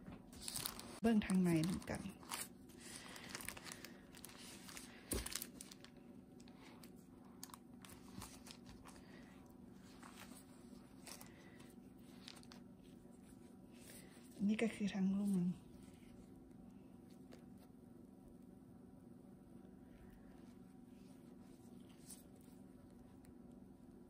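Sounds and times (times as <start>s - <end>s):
bread crinkling and tearing: 0.3s - 14.0s.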